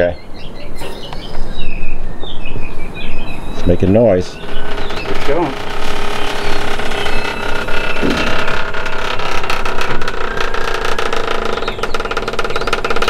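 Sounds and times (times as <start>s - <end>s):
hydraulic jack droning and pulsing: 4.2s - 13.0s.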